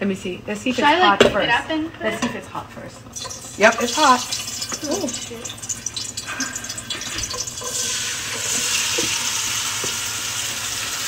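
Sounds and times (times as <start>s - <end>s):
beans frying in hot oil: 3.1s - 11.0s.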